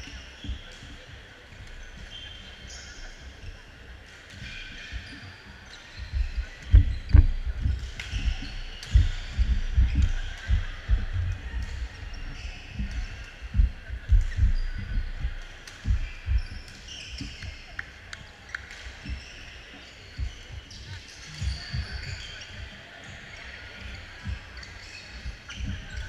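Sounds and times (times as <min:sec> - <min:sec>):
shoe squeaks: 0:04.4 - 0:13.5.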